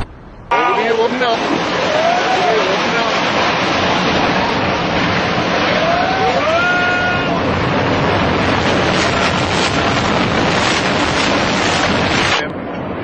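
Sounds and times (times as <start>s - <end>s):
building collapse rushing noise: 0.0s - 13.0s
faint shout-like glide: 5.7s - 7.5s.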